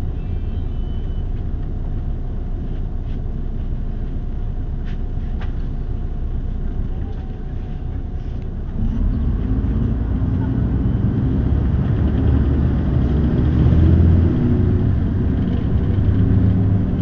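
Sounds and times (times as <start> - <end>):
bus engine and road rumble: 0.0 - 17.0.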